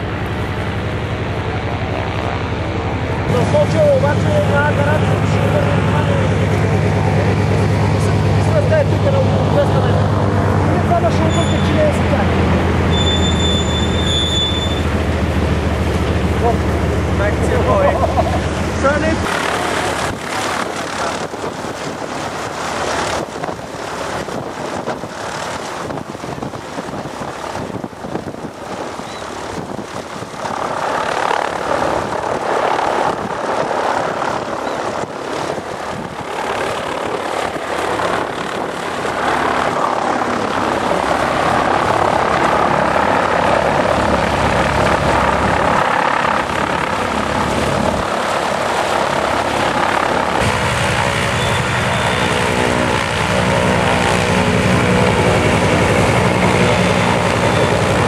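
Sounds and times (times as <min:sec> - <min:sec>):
radial engine propeller plane: 0:00.0 - 0:58.0
wind on microphone: 0:14.8 - 0:58.0.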